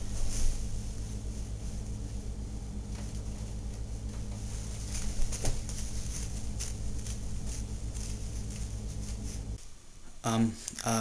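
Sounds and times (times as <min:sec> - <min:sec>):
faint rustles and clicks: 0:00.0 - 0:02.3, 0:02.9 - 0:09.6
low room hum: 0:00.0 - 0:11.0.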